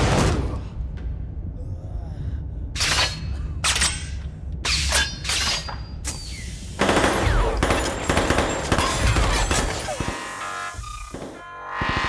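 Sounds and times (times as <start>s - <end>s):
gunfire bursts: 6.8s - 10.3s.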